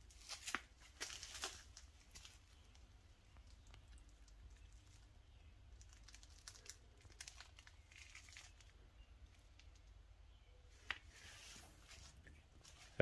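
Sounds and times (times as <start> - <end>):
faint rustling: 10.6 - 13.0.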